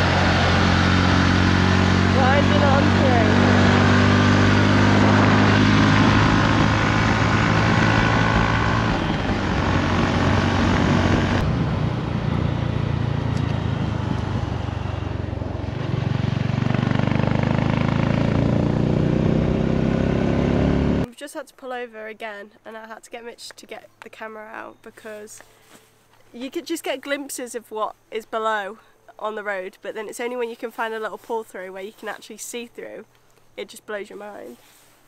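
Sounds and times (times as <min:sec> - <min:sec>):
motorcycle engine running: 0:00.0 - 0:21.1
wind on microphone: 0:04.8 - 0:15.2.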